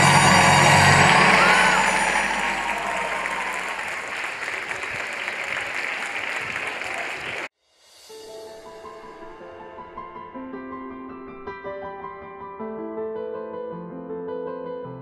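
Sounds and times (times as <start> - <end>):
music with sustained notes: 0.0 - 4.5
large audience applauding: 0.0 - 7.5.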